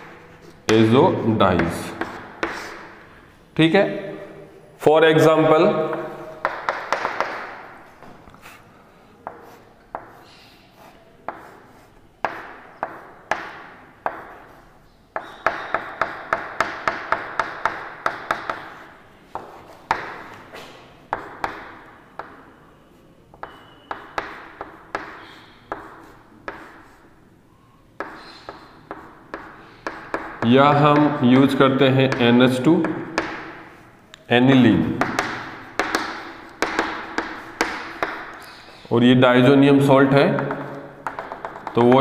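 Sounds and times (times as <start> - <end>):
chalk tapping on blackboard: 1.5 - 3.0, 5.8 - 8.6, 9.2 - 22.5, 23.3 - 27.2, 28.0 - 34.0, 34.6 - 38.8, 40.0 - 42.0.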